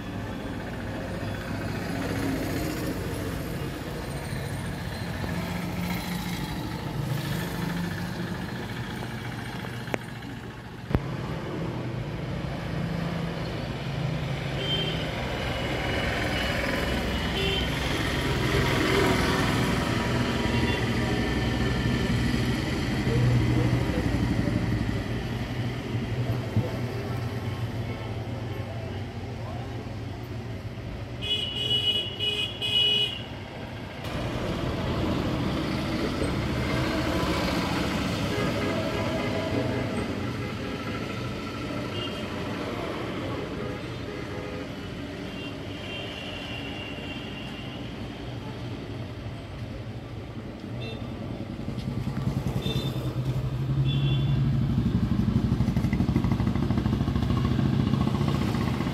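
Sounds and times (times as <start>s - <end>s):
engine droning: 33.6s - 43.6s, 51.5s - 58.9s.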